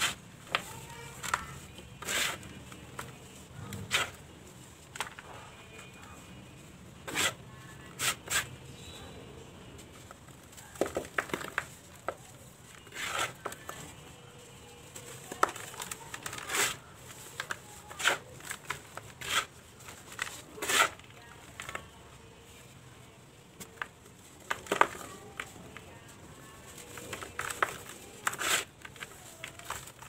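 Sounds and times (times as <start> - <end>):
cement balls crushed in hands: 10.7 - 13.8.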